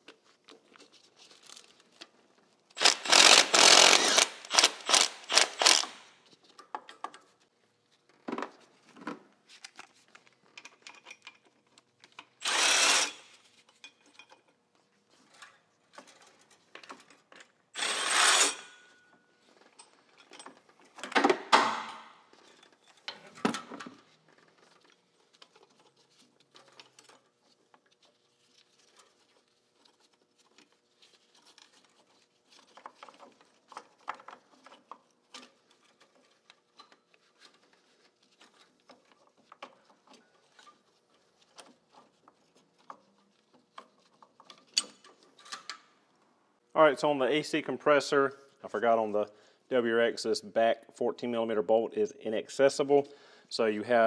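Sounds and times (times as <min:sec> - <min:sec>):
power ratchet whirring in bursts: 0:02.8 - 0:06.1, 0:12.4 - 0:13.3, 0:17.8 - 0:18.8.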